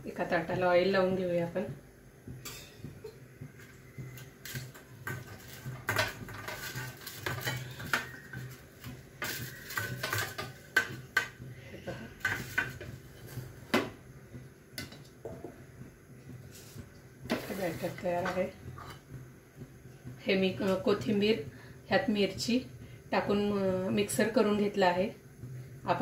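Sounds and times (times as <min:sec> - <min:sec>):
steel dishes clinking and scraping: 0:04.5 - 0:08.2.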